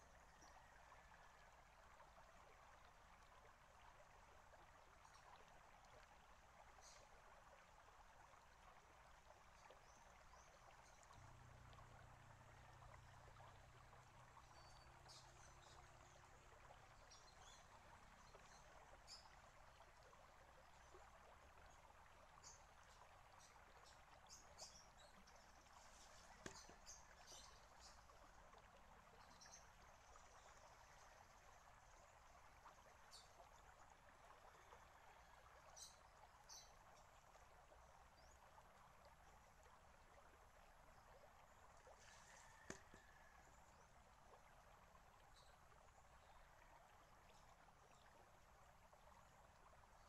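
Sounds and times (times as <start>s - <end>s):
water trickling and bubbling: 0.0s - 50.0s.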